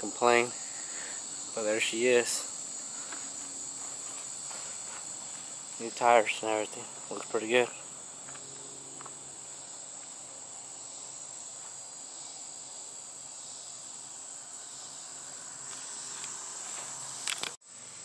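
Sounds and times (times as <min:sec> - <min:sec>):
insects chirping: 0:00.0 - 0:18.0.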